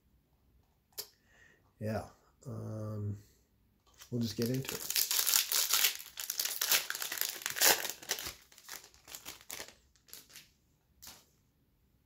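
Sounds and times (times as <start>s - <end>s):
foil wrapper crinkling: 4.0s - 10.5s.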